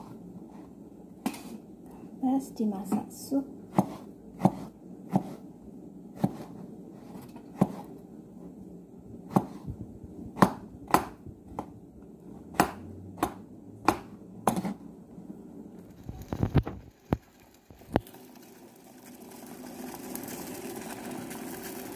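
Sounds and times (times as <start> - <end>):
knife striking cutting board: 12.6 - 14.8.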